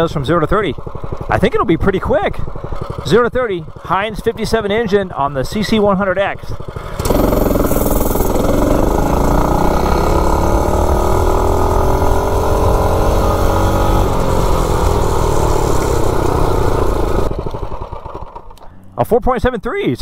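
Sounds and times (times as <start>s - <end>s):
mini bike engine at full throttle: 0.0s - 18.8s.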